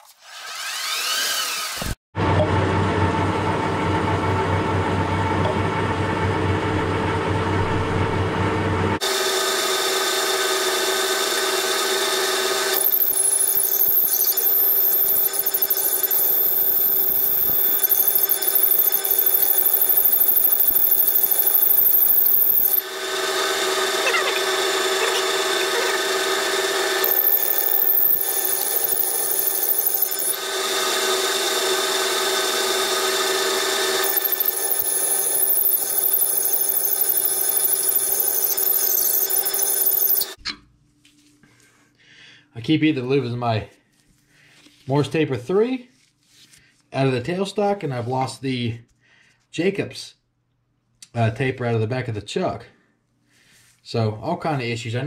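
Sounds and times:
drill bit cutting steel: 0.2s - 2.0s, 9.0s - 40.4s
lathe motor whine: 0.4s - 2.0s, 8.9s - 40.4s.

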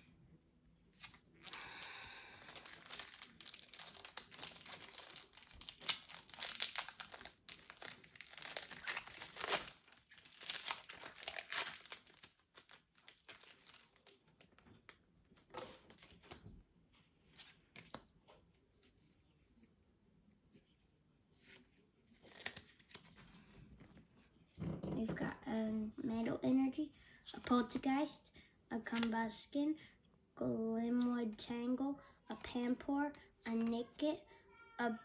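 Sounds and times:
foil wrapper crinkling and tearing: 1.0s - 14.6s.

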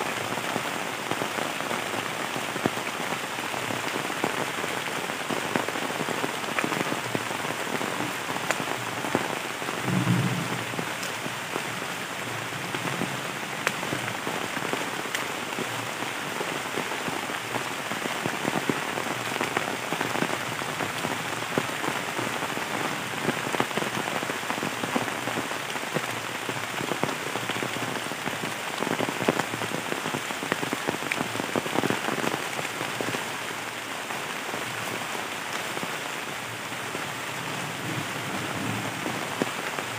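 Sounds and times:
heavy rain on foliage and leaves: 0.0s - 39.9s
low bump: 9.8s - 11.3s.

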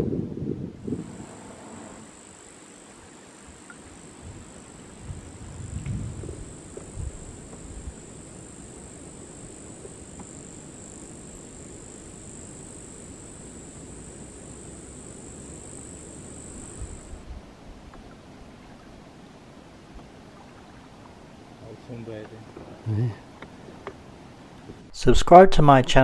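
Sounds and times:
insects buzzing: 0.7s - 24.9s
low even rumble: 4.2s - 11.2s.

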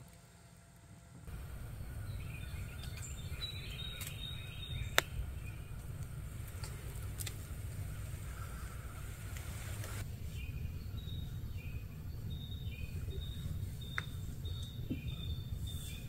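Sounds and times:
steady low rumble: 1.0s - 16.0s
hiss: 7.4s - 10.1s.

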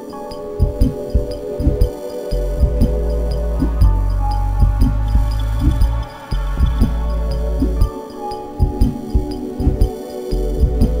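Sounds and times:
held steady music tones: 0.0s - 11.0s
low thumps: 0.6s - 8.0s.

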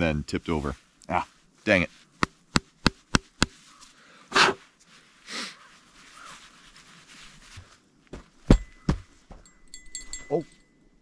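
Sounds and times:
sharp puffs of breath: 3.9s - 4.6s, 5.2s - 6.3s.

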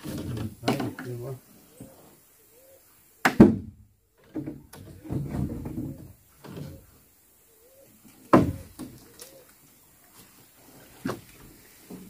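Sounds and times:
soft clattering and thuds: 3.4s - 6.9s.

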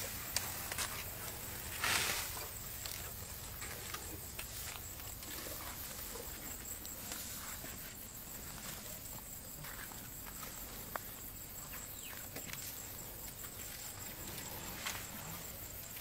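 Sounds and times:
rustling and snapping of grass: 0.0s - 6.0s.

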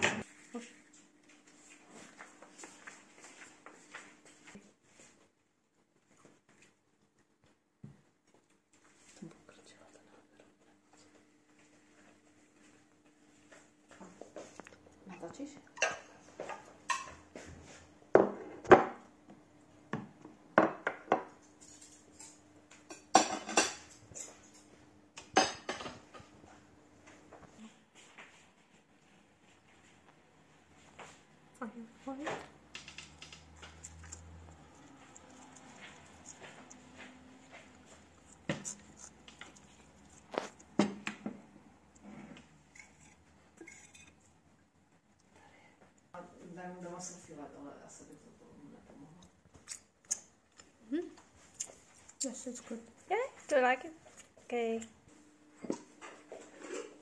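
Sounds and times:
dishes and cutlery clinking: 15.7s - 18.8s, 20.7s - 26.4s, 42.7s - 44.3s
cutlery scraping a ceramic plate: 42.2s - 44.2s, 56.0s - 57.0s.

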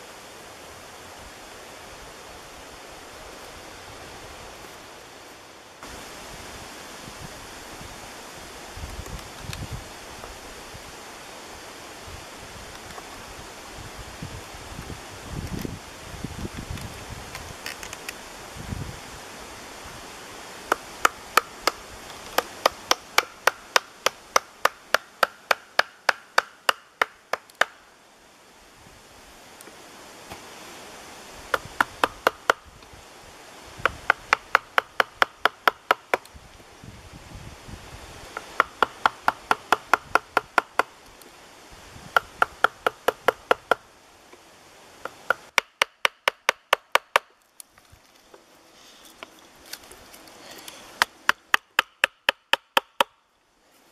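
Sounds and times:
mallet striking chisel on wood: 45.1s - 47.3s, 51.0s - 53.1s.

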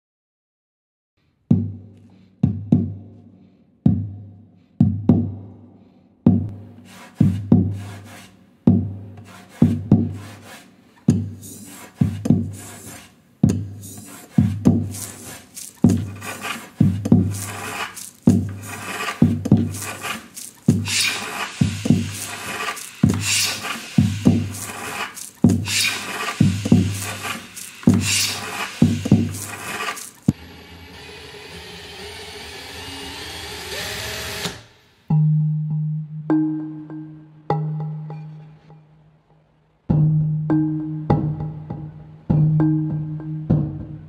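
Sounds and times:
tool scraping on wood: 6.7s - 8.4s, 9.2s - 30.4s.

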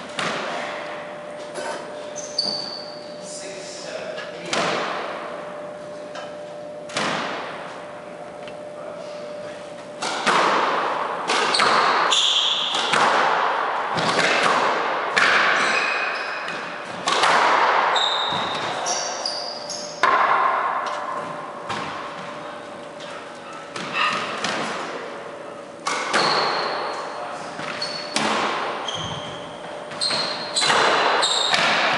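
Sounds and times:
squash ball hitting racquets and walls: 0.0s - 3.1s, 4.4s - 7.9s, 9.9s - 31.9s
shoe squeaks on wooden floor: 2.1s - 3.2s, 11.5s - 12.7s, 18.0s - 20.0s, 26.2s - 28.2s, 28.8s - 31.7s.

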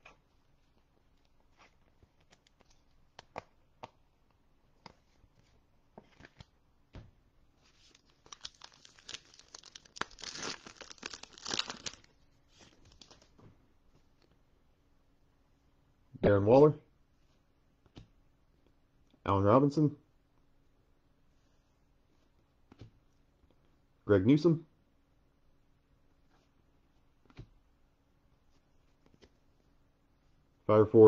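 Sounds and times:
wrapper tearing and crinkling: 7.9s - 12.2s.

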